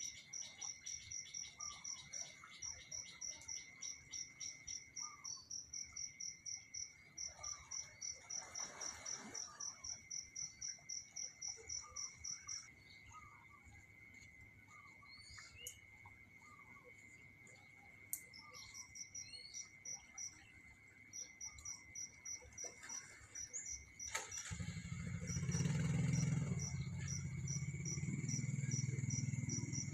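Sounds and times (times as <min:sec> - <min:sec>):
bird chirps: 0:00.0 - 0:06.0, 0:18.1 - 0:20.4
high insect trill: 0:21.1 - 0:29.9.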